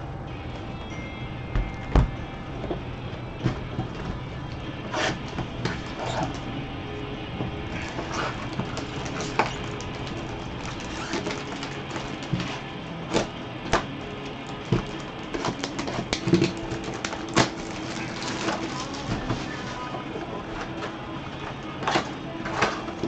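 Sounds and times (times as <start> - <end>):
plastic shrink-wrap crinkling: 7.7 - 12.7, 14.3 - 20.9.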